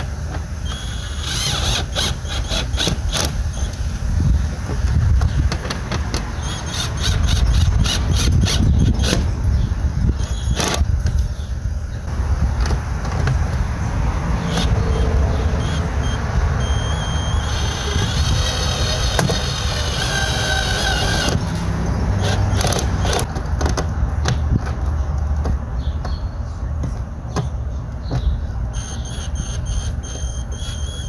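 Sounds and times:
cordless drill motor whining: 0.6s - 3.7s, 16.0s - 21.4s.

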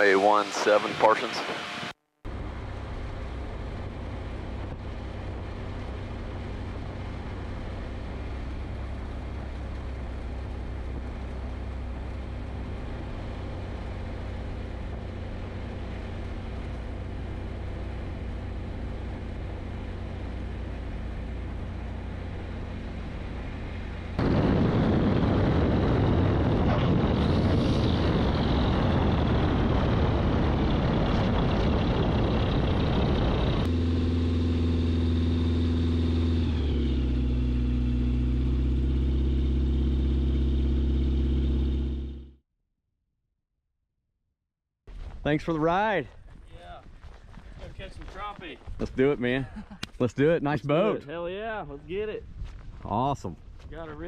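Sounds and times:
light aircraft engine and propeller: 0.0s - 42.4s
rushing air: 24.2s - 33.7s.

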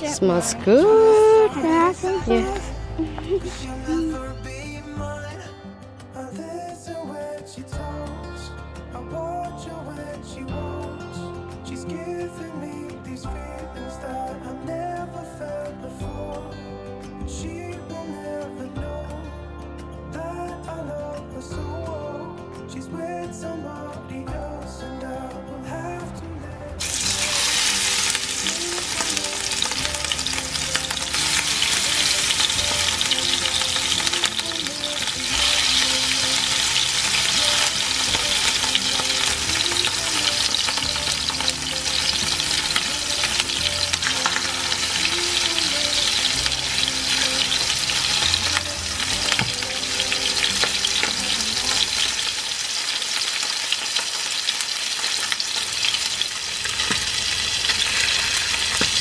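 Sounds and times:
fish sizzling in frying pan: 26.8s - 59.0s.

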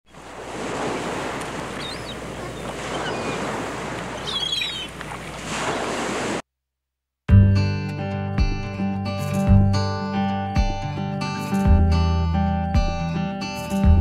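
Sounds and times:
sea waves washing onto shore: 0.1s - 6.4s
short bird calls: 1.6s - 5.0s.

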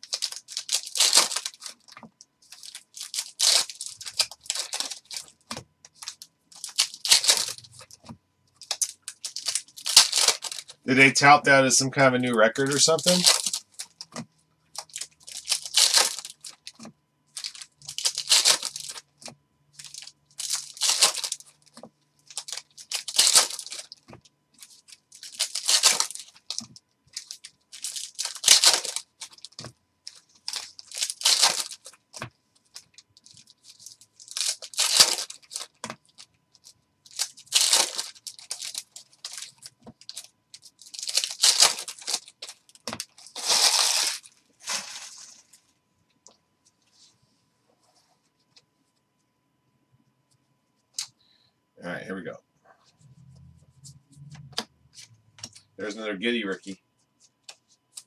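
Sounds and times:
plastic wrappers crinkling and tearing: 0.0s - 11.1s, 11.9s - 45.6s.

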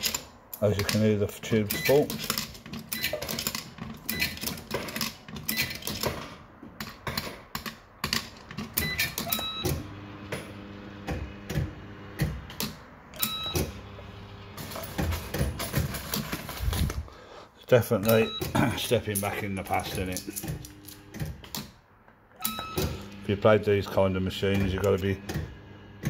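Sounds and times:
coins rattling through slot machine: 1.7s - 6.1s
short electronic beeps: 13.2s - 13.6s, 18.0s - 18.6s, 22.4s - 23.0s.

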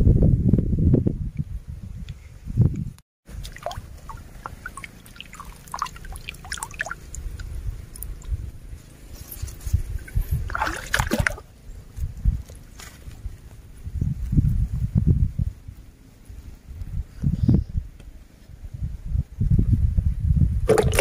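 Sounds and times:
muddy water sloshing: 3.3s - 11.5s, 20.7s - 21.0s.

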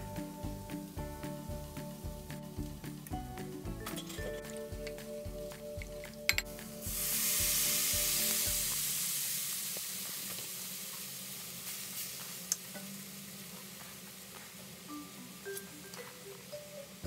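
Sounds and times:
background music with a beat: 0.0s - 8.9s
food sizzling in a pan: 4.0s - 17.0s.

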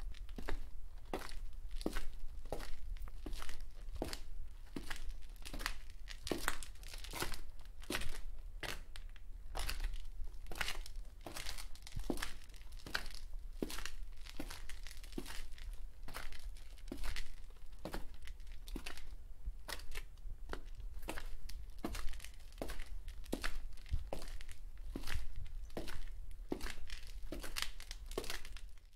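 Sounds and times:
short sharp footsteps: 19.6s - 28.7s.

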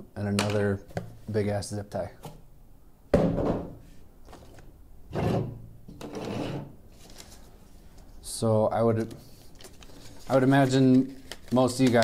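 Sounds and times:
object thunk on table: 3.1s - 3.8s.

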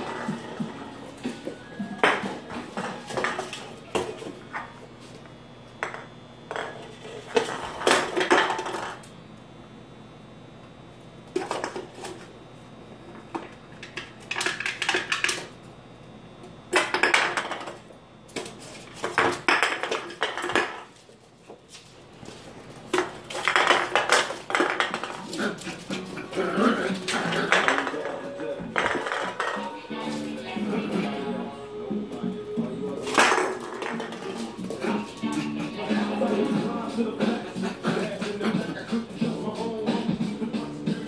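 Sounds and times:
metal can clattering on wooden floor: 26.8s - 29.8s, 33.1s - 35.4s.

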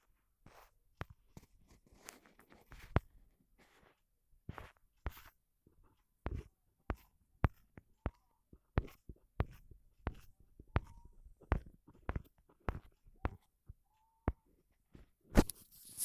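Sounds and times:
sharp irregular clicks and taps: 6.3s - 13.8s.

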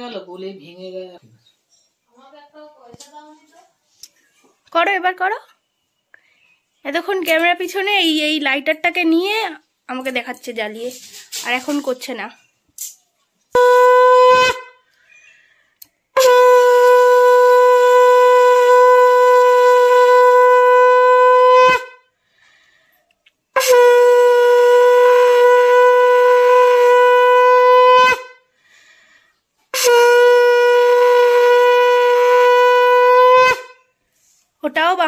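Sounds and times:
conch shell blasts: 13.5s - 14.9s, 16.1s - 22.1s, 23.5s - 28.5s, 29.7s - 34.0s.

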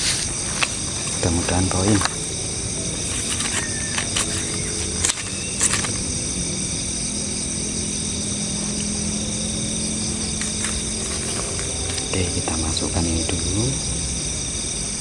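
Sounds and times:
crickets trilling: 0.0s - 15.0s
faint low hum: 0.0s - 15.0s
sharp clicks: 3.2s - 6.1s.

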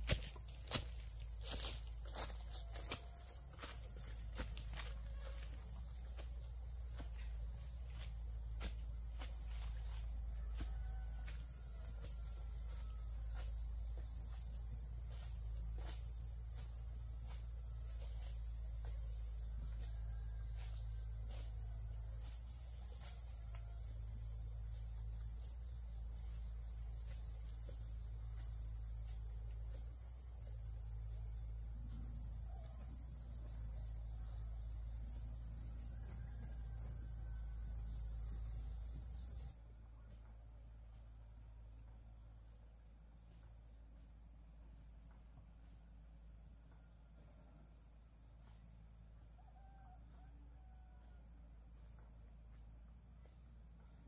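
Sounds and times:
insect chorus: 0.0s - 54.0s
low steady rumble: 39.5s - 49.3s.

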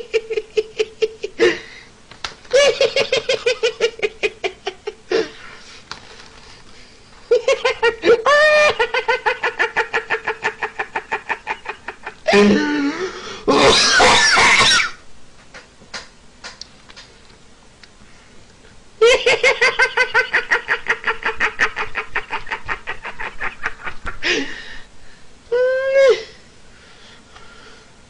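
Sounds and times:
man laughing: 2.5s - 5.4s, 7.3s - 14.6s, 19.0s - 24.7s.

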